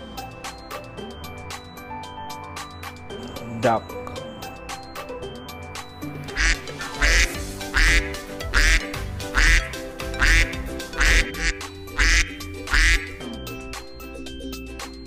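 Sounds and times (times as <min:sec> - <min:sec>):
background music: 0:00.0 - 0:15.0
duck quacking: 0:06.3 - 0:13.2.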